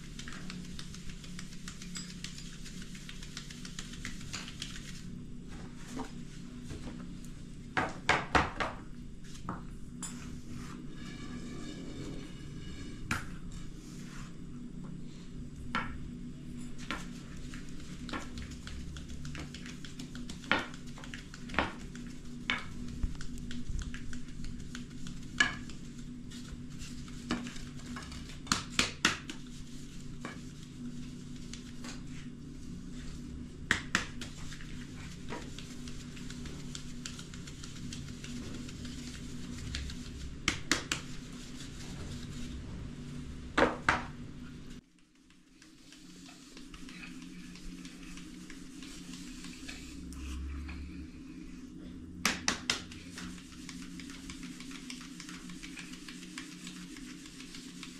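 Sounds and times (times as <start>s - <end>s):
flour sieve shaking: 0.0s - 5.2s, 17.0s - 33.4s, 34.0s - 42.6s, 45.2s - 50.1s, 52.6s - 57.9s
low hum: 9.0s - 19.8s, 46.8s - 52.2s.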